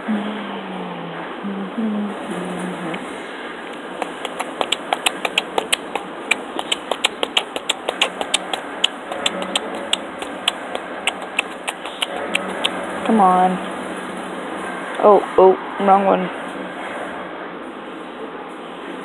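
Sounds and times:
laptop keys clicking: 4.0 - 12.7.

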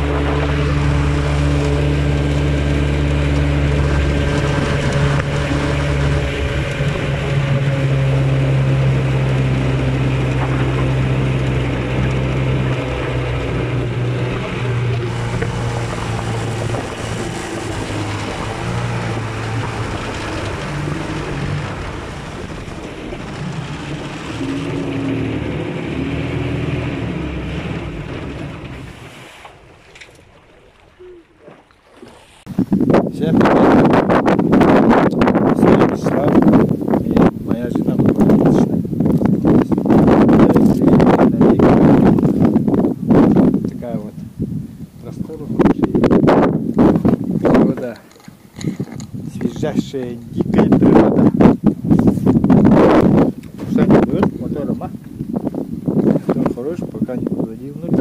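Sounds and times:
outboard motor running: 0.0 - 58.0.

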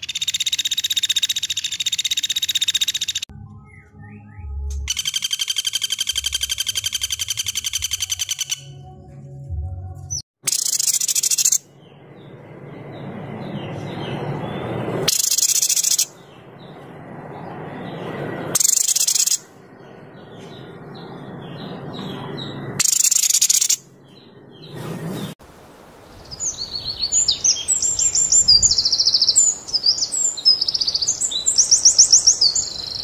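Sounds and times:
harsh rasping bird calls: 0.0 - 3.3, 4.9 - 8.8, 10.4 - 11.6, 15.0 - 16.3, 18.6 - 19.5, 21.4 - 25.3
songbird trill: 0.0 - 9.0, 10.1 - 16.9, 17.5 - 24.8, 26.1 - 33.0.

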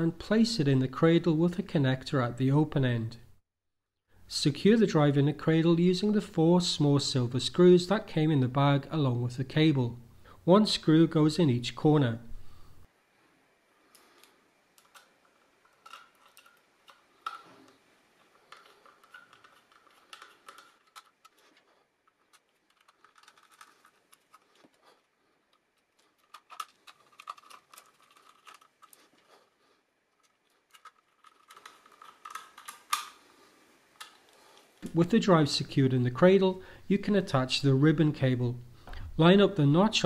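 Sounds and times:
screwdriver clicks and metal scraping: 13.9 - 24.8, 25.5 - 29.3, 30.2 - 33.2.

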